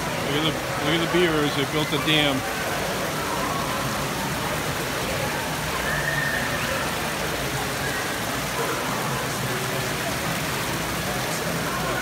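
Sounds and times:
waterfall splashing into pool: 0.0 - 12.0.

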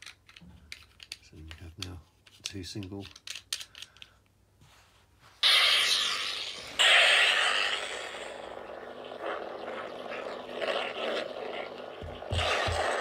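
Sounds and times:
lightsaber electric hum: 5.4 - 13.0
lightsaber ignition burst: 5.4 - 13.0.

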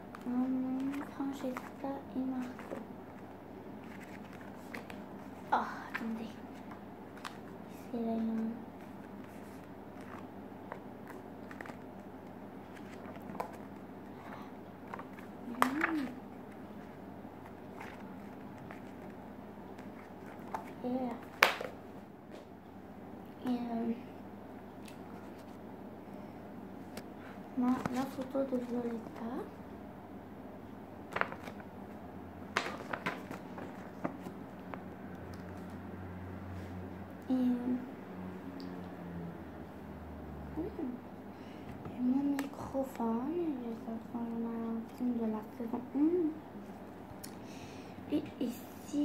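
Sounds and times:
paper crackling and tapping: 0.0 - 21.8, 26.9 - 29.5, 31.1 - 35.8
steady low hum: 0.0 - 49.0
book pages turning: 0.1 - 22.5, 24.8 - 25.6, 26.9 - 29.3, 31.1 - 35.8.

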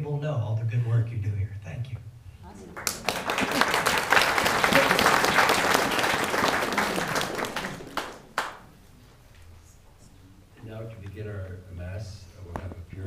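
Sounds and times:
crowd applauding: 2.6 - 8.7.

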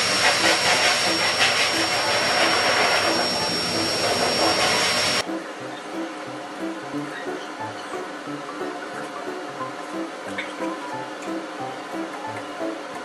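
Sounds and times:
blow dryer running: 0.0 - 7.1.

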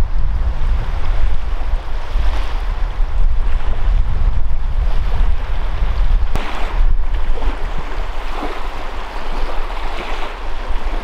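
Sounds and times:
heavy rumble: 0.0 - 8.2
waves washing on shore: 0.0 - 11.0
wind buffeting microphone: 0.0 - 11.0.

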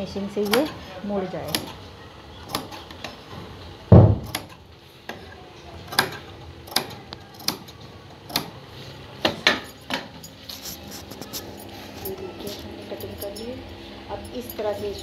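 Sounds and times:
dull thump: 3.9 - 4.4.

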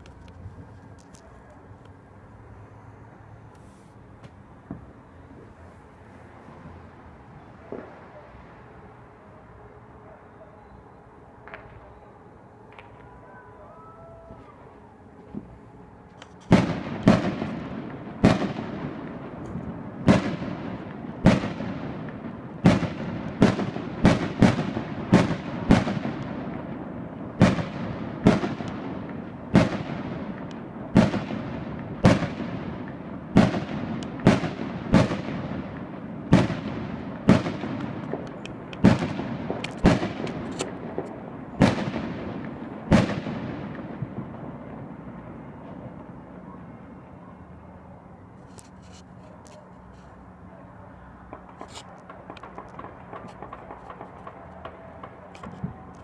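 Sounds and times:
fireworks banging: 3.6 - 5.6, 14.2 - 46.3, 51.2 - 56.0.

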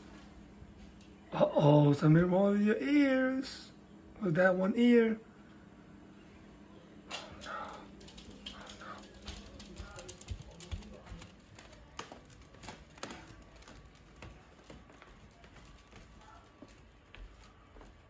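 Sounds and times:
dog claws clicking on hard floor: 7.1 - 17.9.

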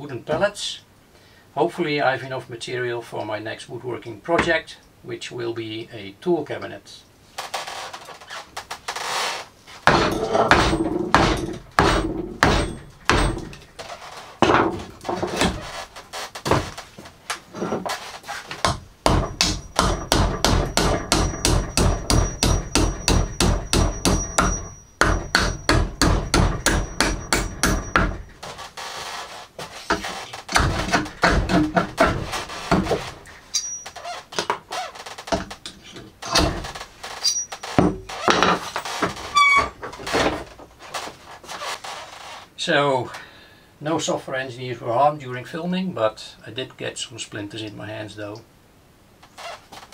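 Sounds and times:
hammer blows on wooden boards: 9.8 - 13.7, 18.5 - 28.4, 29.9 - 33.2.

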